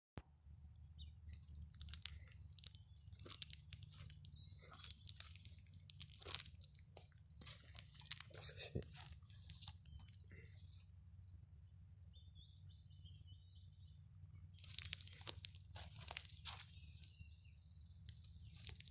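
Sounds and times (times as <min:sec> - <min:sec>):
low steady hum: 0:00.2 - 0:18.9
crunching and crackling: 0:00.6 - 0:11.0, 0:14.3 - 0:17.4, 0:18.0 - 0:18.9.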